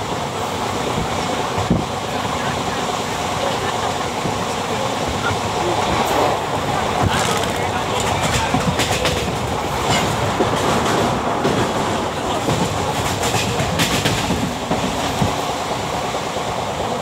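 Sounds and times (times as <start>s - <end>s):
train rumble and rushing air: 0.0s - 17.0s
wheels clacking over rail joints: 5.9s - 15.4s.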